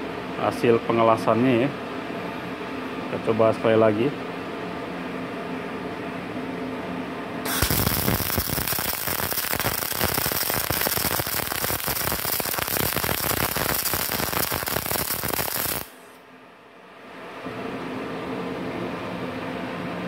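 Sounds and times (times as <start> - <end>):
welding arc crackling: 7.5 - 16.2.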